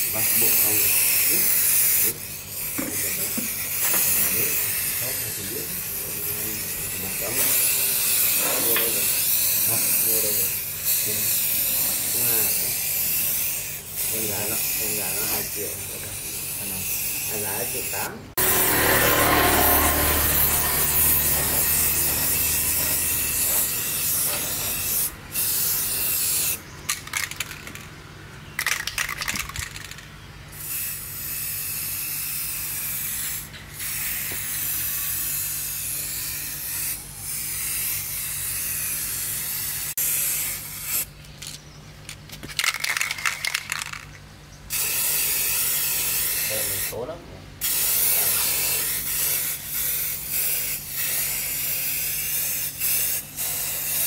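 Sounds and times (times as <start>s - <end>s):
low motor hum: 18.4s - 25.4s
spray gun hissing: 47.6s - 54.0s.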